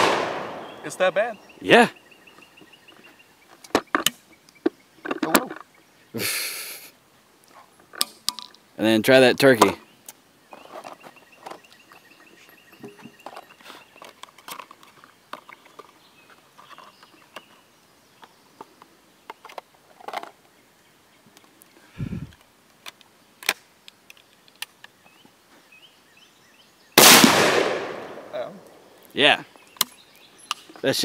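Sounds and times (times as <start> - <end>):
shotgun action closing: 0.0 - 0.9, 27.0 - 28.3
shotgun shell handling clicks: 7.9 - 8.6.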